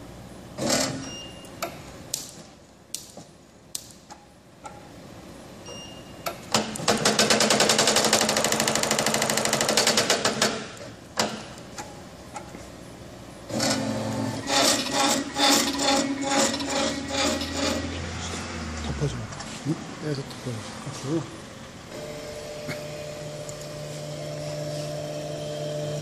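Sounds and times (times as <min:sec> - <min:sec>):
punching machine clattering: 0:06.5 - 0:11.5.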